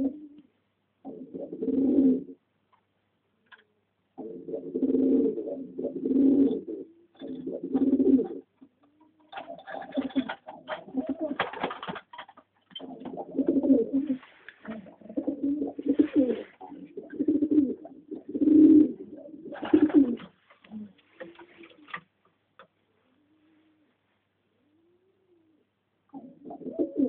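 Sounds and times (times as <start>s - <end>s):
pigeons cooing: 0.0s - 2.4s, 4.2s - 12.0s, 12.8s - 22.0s, 23.1s - 27.0s
brief rustling: 15.8s - 16.8s.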